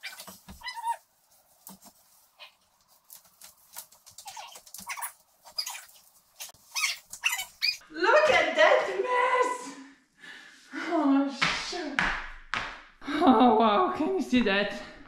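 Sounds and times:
rustling: 0.0 - 7.8.

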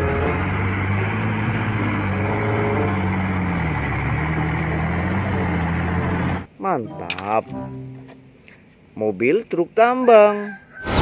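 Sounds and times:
off-road vehicle engine under load: 0.0 - 6.5.

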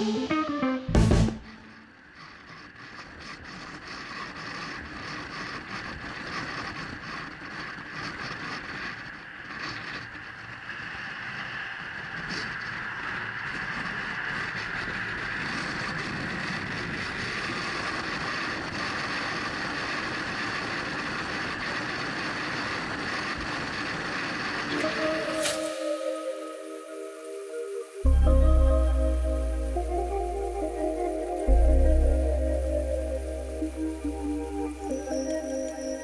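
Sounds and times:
wind road and engine noise: 1.8 - 25.9.

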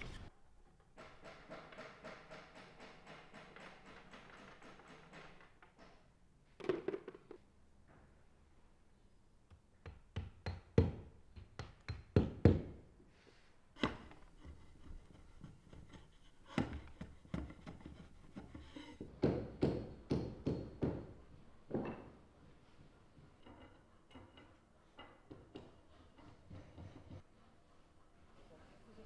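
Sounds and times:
hammer knocking wooden plugs: 1.0 - 5.3, 9.8 - 12.8, 13.8 - 22.1.

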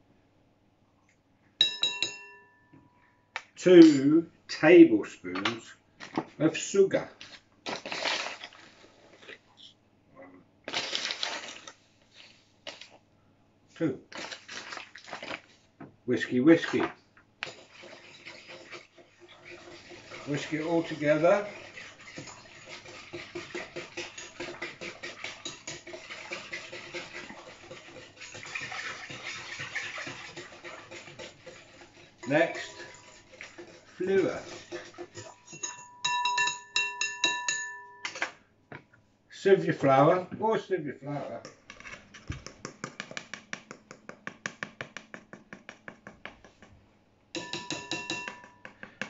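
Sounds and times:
metal sieve clinking on glass bowl: 1.6 - 2.6, 32.2 - 33.2, 34.0 - 38.2, 47.4 - 48.7
whisk beating liquid in glass bowl: 17.4 - 37.7, 47.4 - 48.6.

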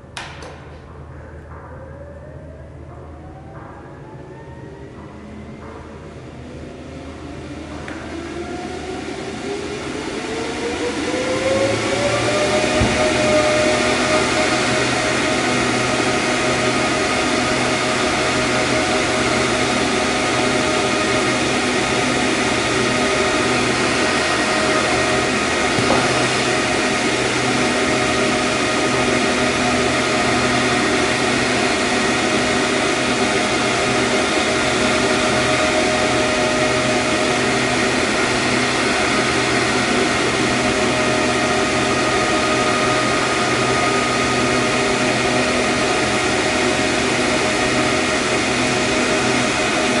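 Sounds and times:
electric air blowers rushing: 0.0 - 50.0.

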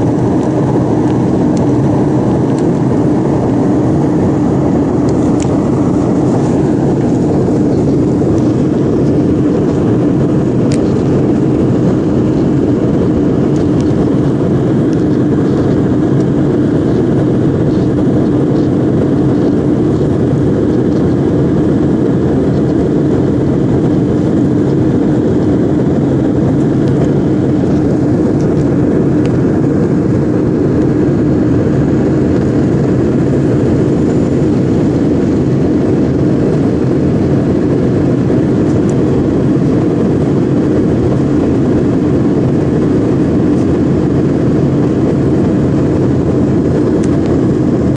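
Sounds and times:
jet engines roaring in cabin: 0.0 - 47.9
rushing air: 0.0 - 47.9.

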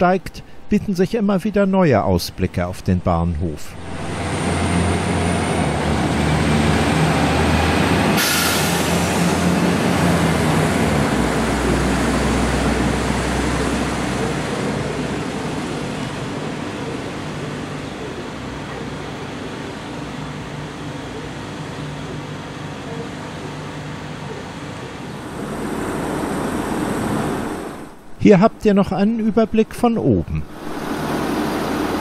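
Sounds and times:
electric train running: 3.8 - 28.1
short hiss: 8.2 - 9.0.

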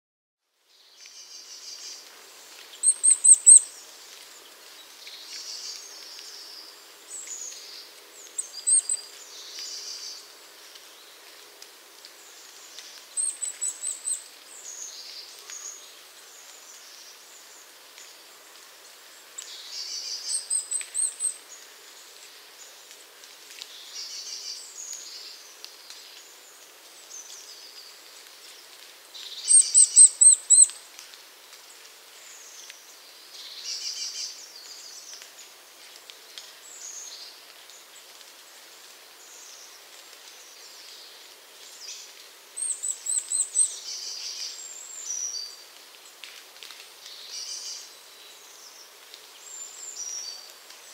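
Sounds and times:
high thin bird chirps: 2.8 - 3.7, 29.4 - 30.8
soft varied bird calls: 29.2 - 30.8.

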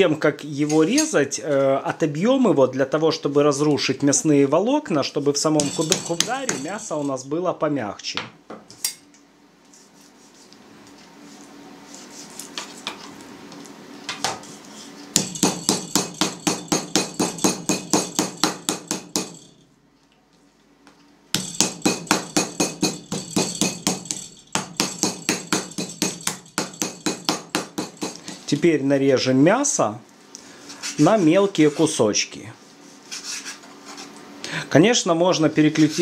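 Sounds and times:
meat mallet pounding meat: 15.2 - 19.5, 21.3 - 28.3.

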